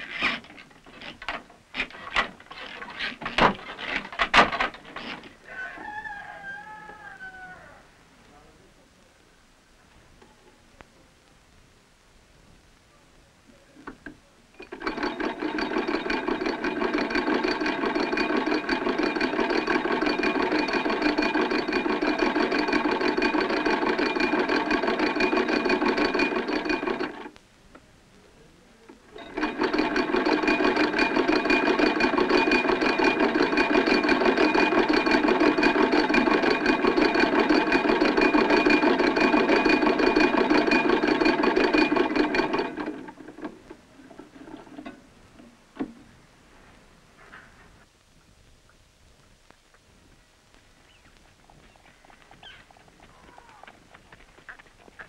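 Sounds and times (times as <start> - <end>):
hand-cranked sewing machine rattling: 0.0 - 5.3, 14.6 - 27.3, 29.1 - 45.0.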